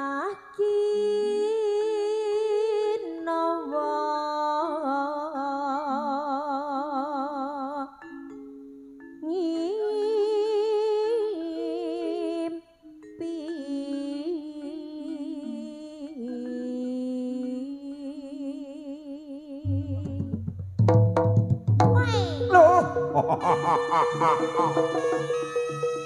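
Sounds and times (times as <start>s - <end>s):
long wavering melody notes: 19.6s - 20.6s, 22.0s - 26.0s
low drum beat: 19.7s - 23.4s.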